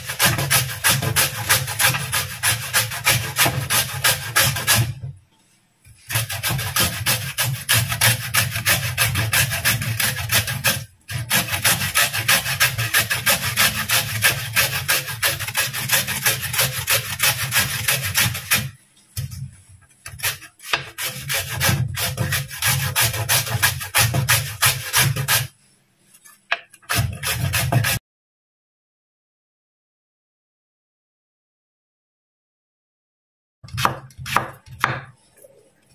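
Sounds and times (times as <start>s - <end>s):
carrot rasping on metal grater: 0.0s - 5.0s, 6.0s - 18.8s, 20.0s - 25.6s, 26.8s - 28.0s.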